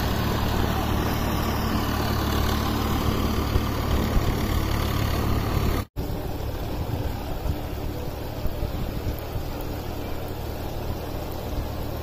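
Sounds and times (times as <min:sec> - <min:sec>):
rain hissing: 0:00.0 - 0:12.0
tractor engine rumbling: 0:00.0 - 0:12.0
wind: 0:00.0 - 0:12.0.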